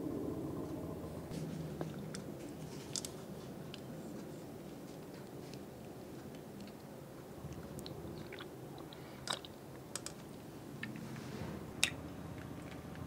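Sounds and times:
small clicks and ticks: 7.5 - 11.0.

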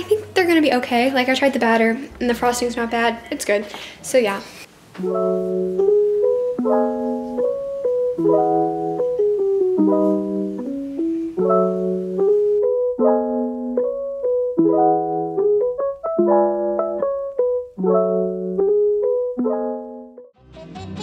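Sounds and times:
slow piano chords: 5.0 - 20.4.

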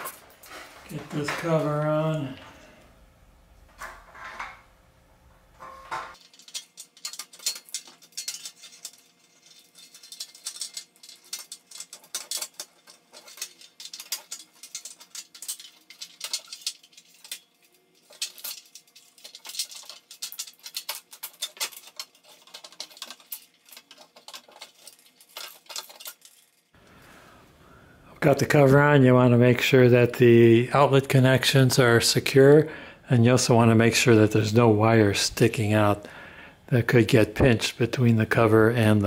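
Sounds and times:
sheet metal scraping and rattling: 5.6 - 26.7.

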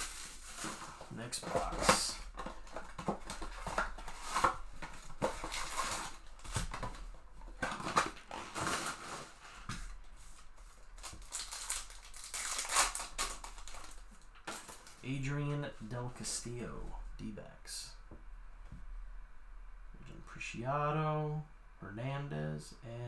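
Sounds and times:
foil packs crinkling: 0.0 - 9.6, 10.9 - 15.1
foil wrapper ripping: 11.0 - 15.0.

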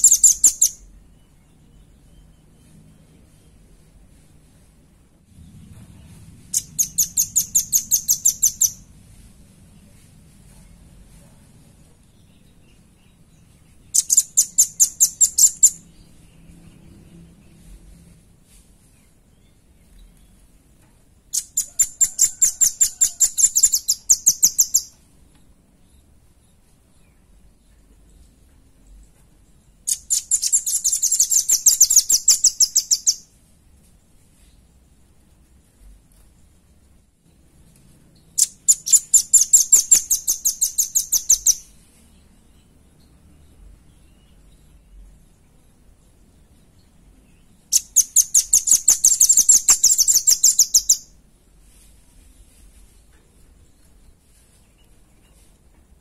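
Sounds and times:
bird calling fast trill: 0.0 - 0.8, 38.4 - 41.6.

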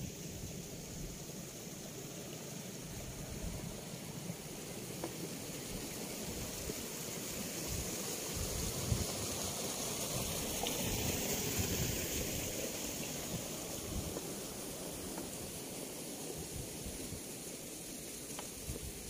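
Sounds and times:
steady high hiss: 0.0 - 19.0
wind buffeting microphone: 7.6 - 14.4.

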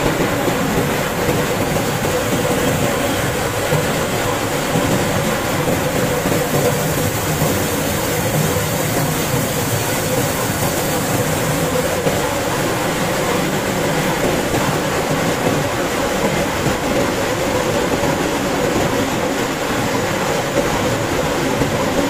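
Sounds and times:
roller mill running: 0.0 - 22.0.

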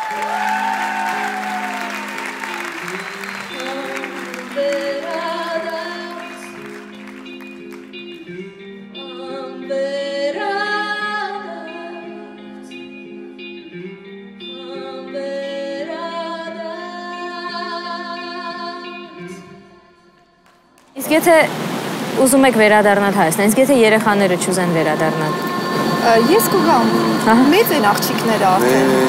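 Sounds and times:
audience applause: 0.0 - 8.2, 25.2 - 29.0
woman singing: 2.8 - 6.7, 8.2 - 13.0, 13.6 - 20.1, 23.0 - 29.0
plucked string accompaniment: 22.8 - 29.0.

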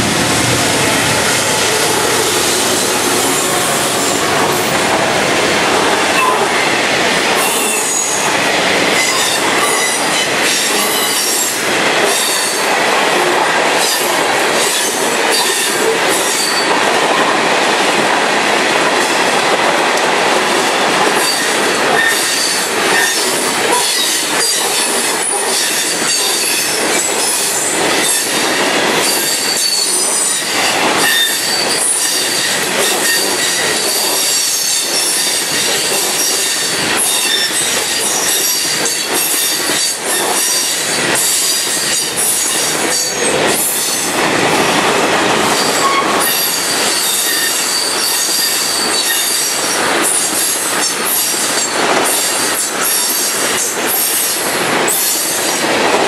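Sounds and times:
steel wheels roaring on rail: 0.0 - 56.0
train cars clattering: 0.0 - 56.0.

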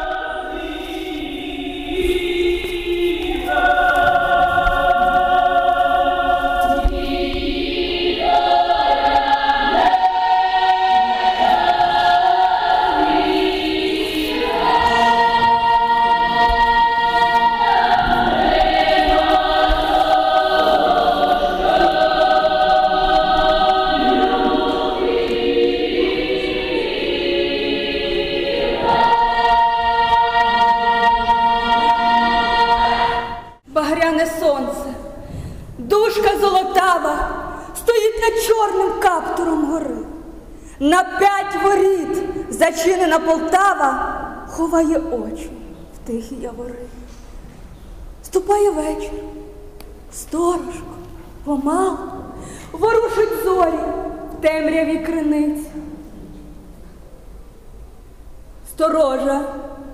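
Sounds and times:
choir singing long chords: 0.0 - 33.6.

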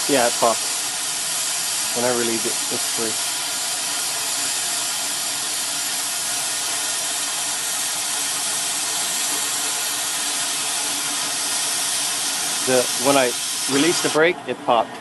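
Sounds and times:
cutting torch hissing: 0.0 - 14.3.

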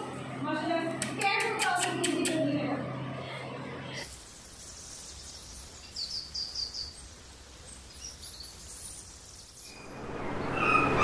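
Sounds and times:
soft hiss: 4.0 - 9.7
birds chirping: 4.9 - 11.0.

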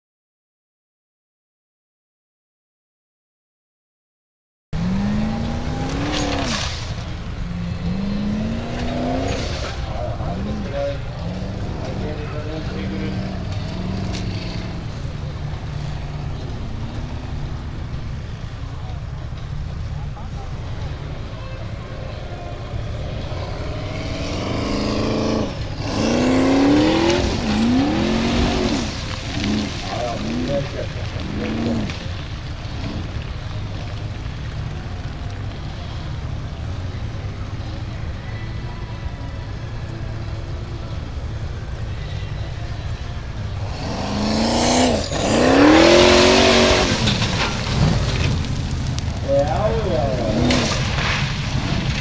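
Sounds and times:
buggy engine revving: 4.8 - 52.0
gravel spraying: 4.8 - 52.0
buggy rolling over knocks: 43.6 - 52.0.

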